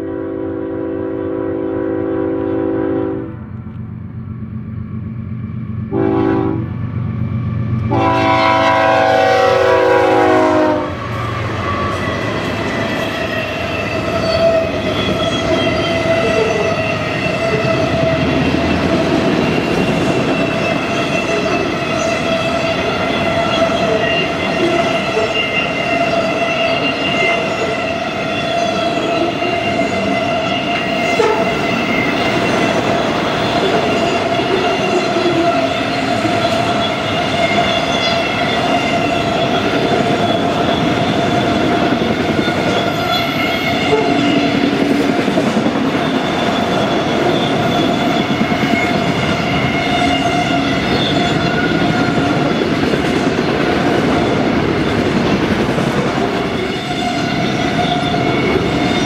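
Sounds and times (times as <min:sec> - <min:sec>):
train air horn chord: 0:00.0 - 0:03.4, 0:05.9 - 0:06.7, 0:07.9 - 0:11.0, 0:31.2 - 0:31.6
diesel locomotives passing: 0:00.0 - 0:59.0
train wheels rumbling on rails: 0:00.0 - 0:59.0
ringing tone of wheels: 0:11.2 - 0:44.6, 0:46.0 - 0:52.8.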